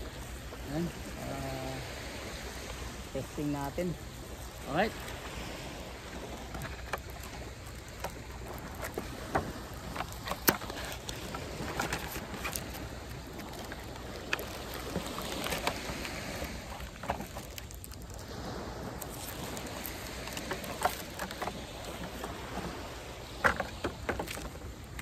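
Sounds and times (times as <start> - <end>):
wind and surf: 0.0 - 25.0
plastic bag crinkling: 7.1 - 18.3.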